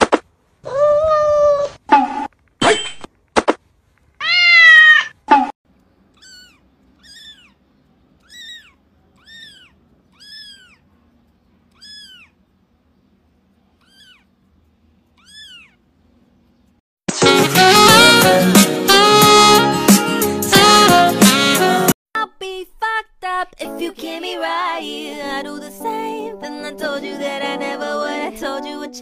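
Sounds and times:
kittens meowing: 4.2s - 5.2s, 6.1s - 7.6s, 8.2s - 10.9s, 11.7s - 12.4s, 13.7s - 14.3s, 15.1s - 15.9s.

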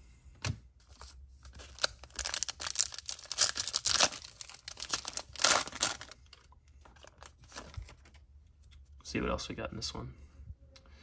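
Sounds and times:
wrapper being torn open: 1.5s - 6.4s.

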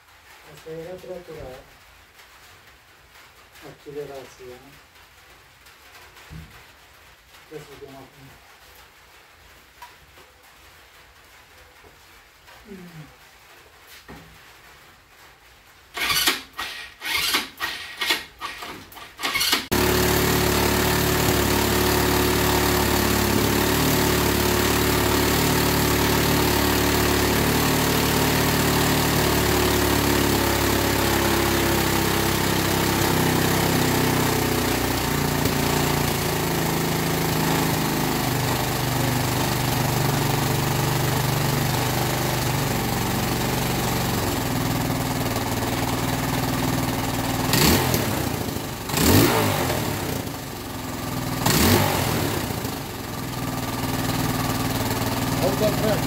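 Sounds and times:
electric starter cranking engine: 16.0s - 56.0s
engine running at fast idle: 16.0s - 56.0s.

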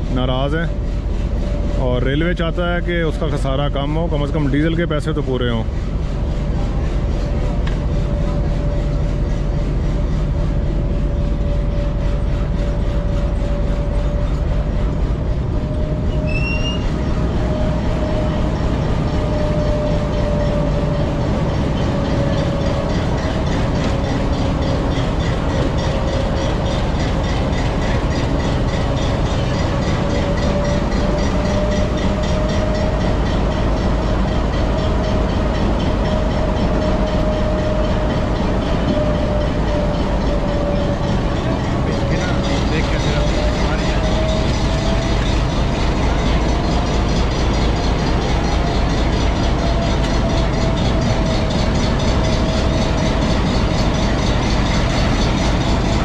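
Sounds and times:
locomotive engine drone: 0.0s - 56.0s.

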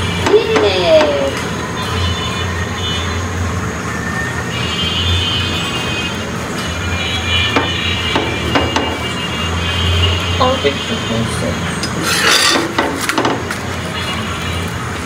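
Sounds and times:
gas burner rumbling: 11.8s - 13.8s.

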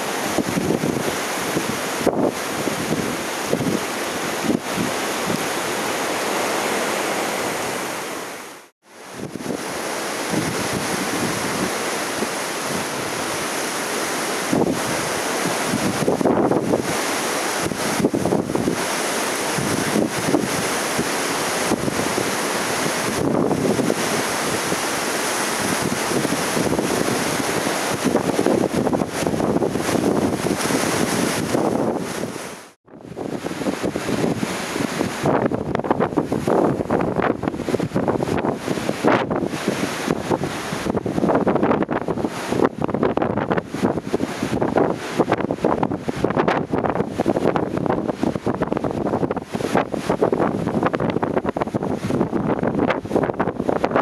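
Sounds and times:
surf rushing and breaking: 0.0s - 54.0s
wind gusting on microphone: 0.0s - 54.0s.

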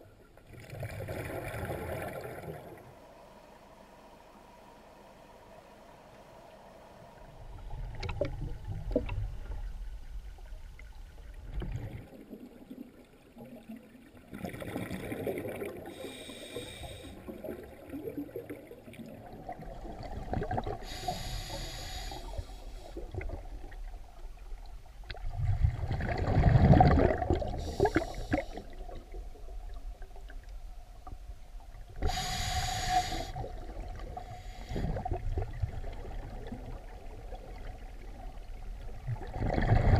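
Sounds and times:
regulator hissing inhalation: 15.9s - 17.3s, 20.8s - 23.0s, 27.6s - 28.8s, 32.0s - 33.5s, 34.2s - 35.0s
bubbling exhaled air: 25.2s - 29.8s, 39.0s - 39.9s.

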